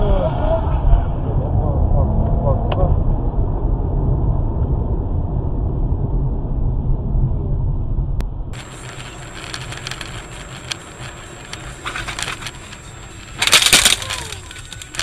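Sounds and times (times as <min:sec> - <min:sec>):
crackly noise: 0:08.2 - 0:15.0
scattered clicks: 0:08.6 - 0:15.0
car crash impact: 0:11.8 - 0:15.0.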